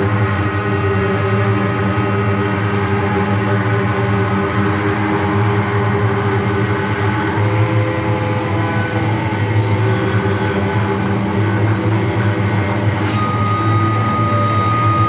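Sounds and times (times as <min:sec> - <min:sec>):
dense droning noise music: 0:00.0 - 0:15.0
faint high held tones: 0:13.0 - 0:15.0.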